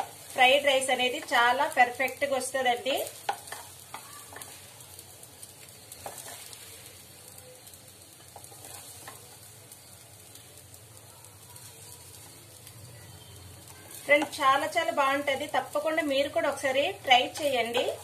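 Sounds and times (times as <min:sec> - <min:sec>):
spatula scraping rice: 0:03.2 - 0:04.8, 0:05.9 - 0:06.9, 0:08.4 - 0:09.2.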